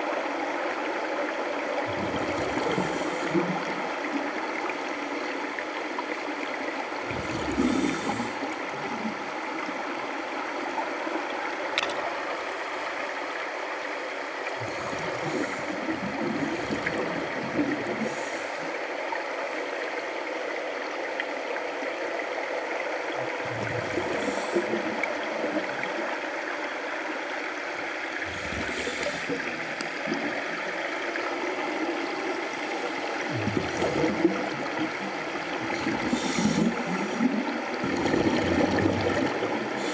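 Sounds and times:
underwater hiss: 1.9s - 3.8s, 7.0s - 9.1s, 14.6s - 18.8s, 23.5s - 25.7s, 28.2s - 39.9s
regulator bubbling: 33.2s - 39.9s.

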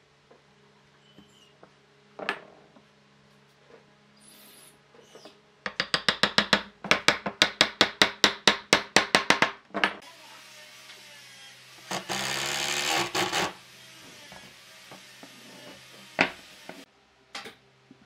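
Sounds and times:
hammer tapping wood joint: 5.7s - 9.6s
cordless drill whirring: 11.9s - 14.4s.

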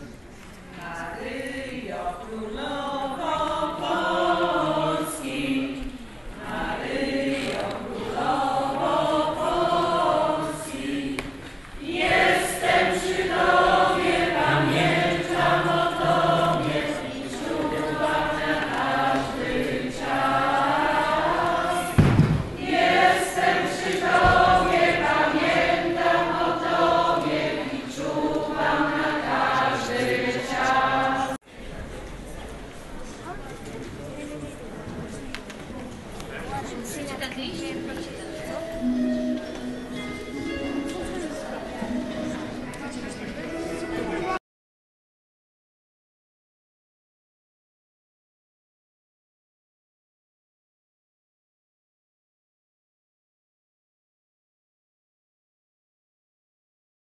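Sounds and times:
choir singing a hymn: 0.8s - 31.4s
brief thump: 21.9s - 22.6s.

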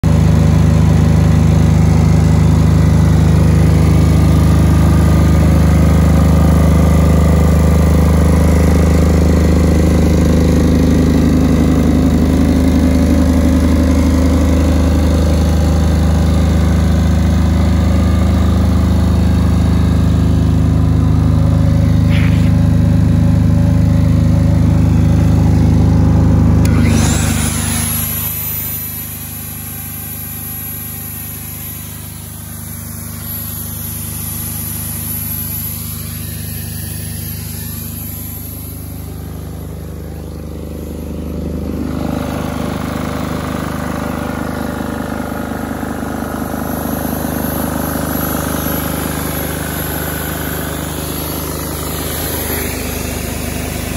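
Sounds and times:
diesel generator running: 0.0s - 53.9s
high whine: 17.5s - 44.0s, 46.4s - 53.9s.

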